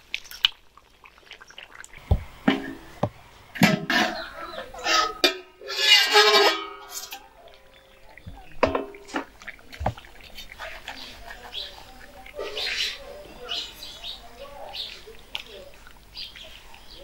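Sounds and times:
metal ladle clanking on pan: 2.1s - 7.2s, 8.3s - 9.3s
metal lid scraping with screech: 3.6s - 7.2s.

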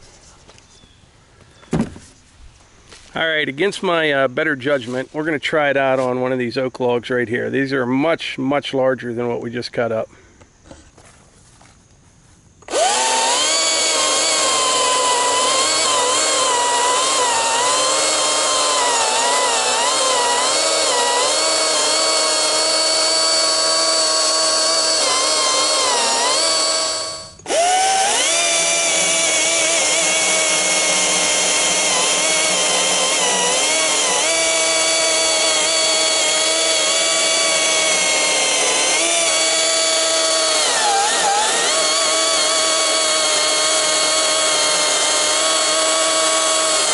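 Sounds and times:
electric chainsaw cutting log: 12.6s - 46.9s.

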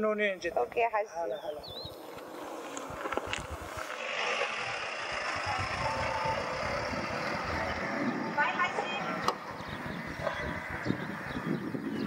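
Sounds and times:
vehicle passing on road: 0.7s - 12.0s
wind rumble on microphone: 2.8s - 4.0s, 5.0s - 12.0s.

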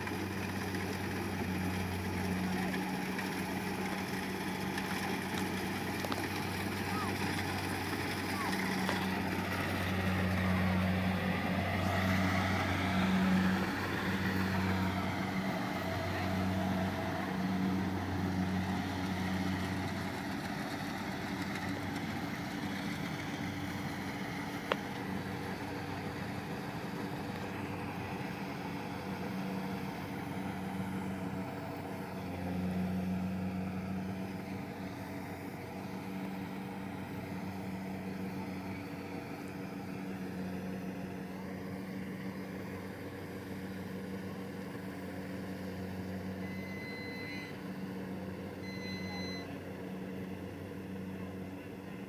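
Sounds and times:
harvester engine and machinery humming: 0.0s - 52.0s.

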